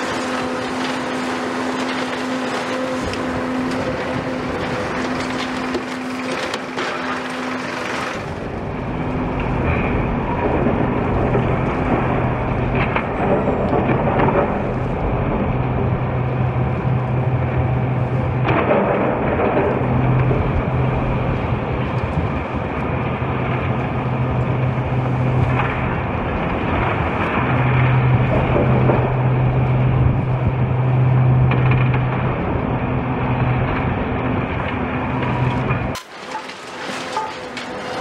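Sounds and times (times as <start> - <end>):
concrete cracking: 0.0 - 15.3, 35.5 - 38.0
rubble crunching: 0.0 - 16.0, 35.3 - 38.0
diesel excavator engine running: 0.0 - 38.0
hydraulic crusher grinding concrete: 0.0 - 38.0.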